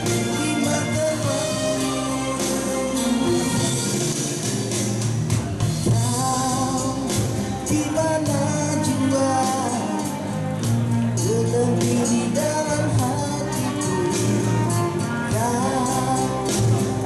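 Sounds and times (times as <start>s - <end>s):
man singing into microphone: 0.0s - 2.8s, 5.8s - 17.0s
live band playing pop song: 0.0s - 17.0s
percussion: 0.0s - 17.0s.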